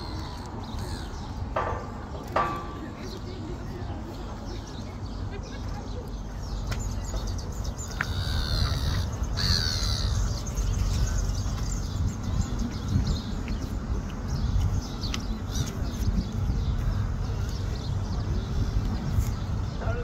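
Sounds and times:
birds calling: 0.0 - 20.0
high gliding bird calls: 7.6 - 11.9.

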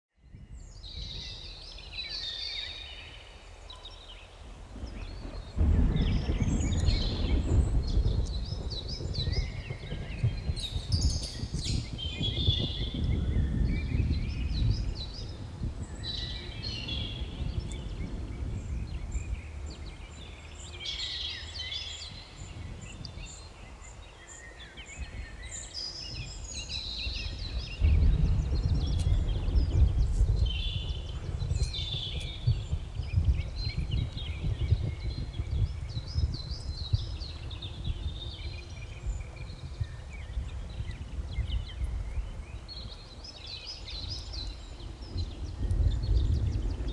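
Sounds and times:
small birds chirping and trilling: 0.2 - 46.9
deep rumble: 4.8 - 20.8, 26.0 - 43.2.

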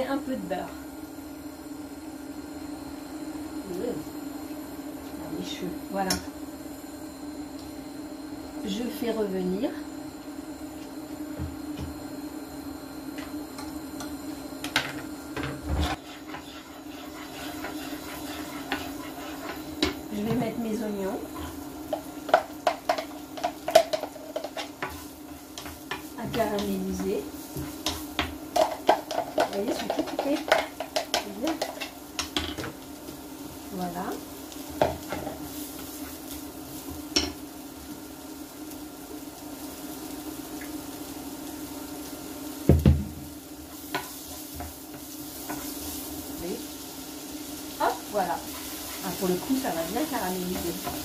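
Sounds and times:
steady low hum: 0.0 - 38.3
onions sizzling in a frying pan: 0.0 - 51.0
spatula scraping frying pan: 15.6 - 20.2, 47.9 - 51.0
wooden spoon stirring: 15.8 - 32.3, 47.8 - 51.0.

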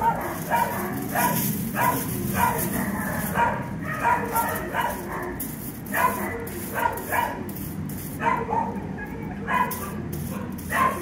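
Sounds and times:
dog barking: 0.0 - 7.4, 8.2 - 11.0.

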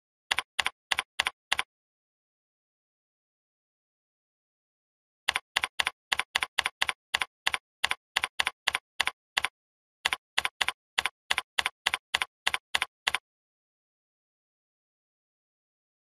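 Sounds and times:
keyboard keystrokes: 0.3 - 1.7, 5.3 - 13.2.

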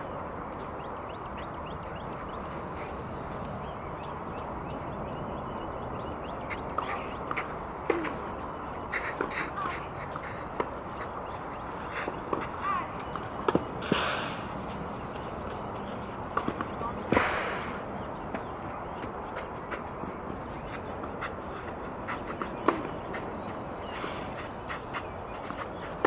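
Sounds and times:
rackets striking tennis ball: 6.5 - 11.2, 11.9 - 14.2, 19.4 - 23.4
footsteps on clay: 17.9 - 26.0
bird calls: 21.5 - 26.0.

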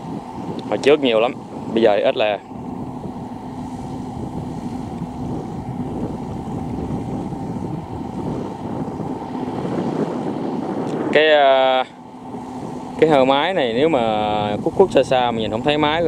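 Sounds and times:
diesel engine running under load: 0.0 - 16.0.

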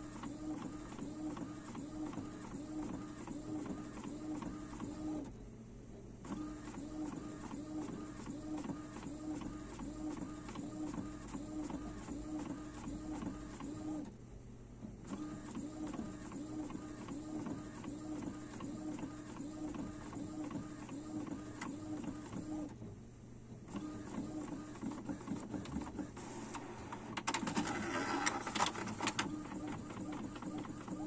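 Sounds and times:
inkjet printer carriage whirring: 0.0 - 5.3, 15.1 - 22.8, 23.7 - 31.0.

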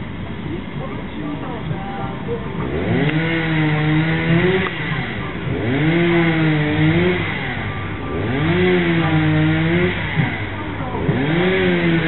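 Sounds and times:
small engine revving: 2.4 - 12.0.

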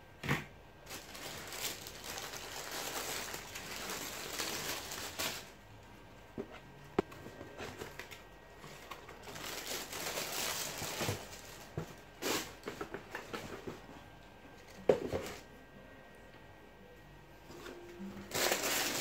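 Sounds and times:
tissue paper rustling: 0.9 - 5.5, 7.7 - 12.6, 18.2 - 19.0.

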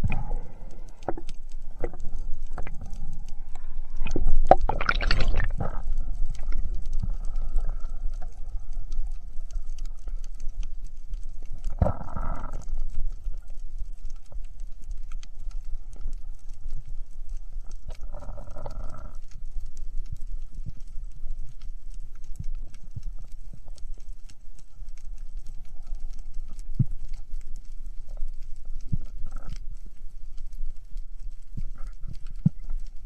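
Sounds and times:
low underwater rumble: 0.0 - 33.0
underwater crackling clicks: 0.0 - 33.0
rush of water: 3.5 - 5.9.

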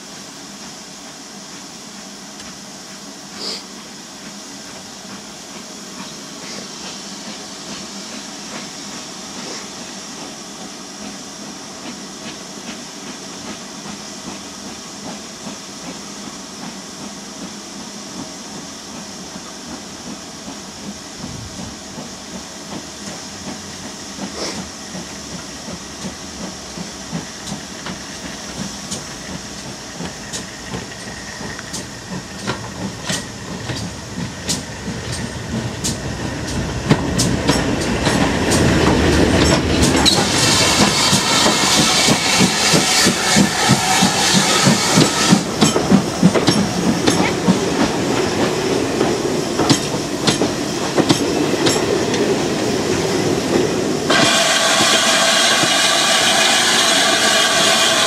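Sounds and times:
steam hissing from locomotive: 0.0 - 58.0
train wheel clicks: 22.7 - 58.0.

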